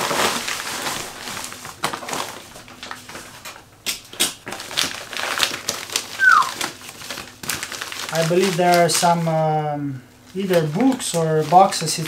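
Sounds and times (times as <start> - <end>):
plastic bag rustling and crinkling: 0.0 - 3.7, 4.4 - 12.0
packages knocking down: 0.0 - 9.2.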